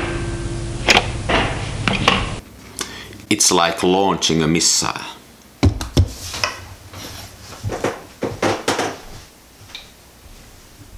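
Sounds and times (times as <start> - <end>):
clunks and rustles of person moving: 5.6 - 10.9.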